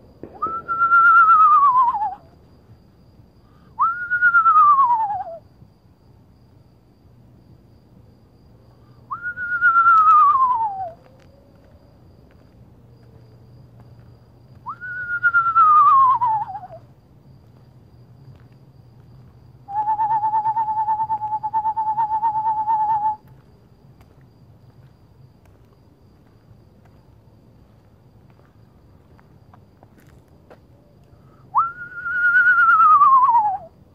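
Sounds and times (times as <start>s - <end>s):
whistled pulsing trill: 0.2s - 2.3s, 3.8s - 5.4s, 9.1s - 11.0s, 14.6s - 16.8s, 19.7s - 23.3s, 31.5s - 33.8s
whistled owl whinny: 14.7s - 16.8s, 19.7s - 23.2s.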